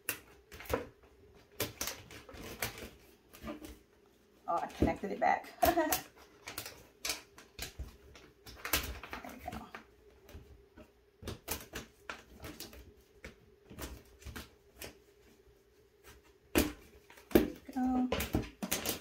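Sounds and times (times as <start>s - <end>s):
plastic basket panels clicking: 16.5s - 19.0s.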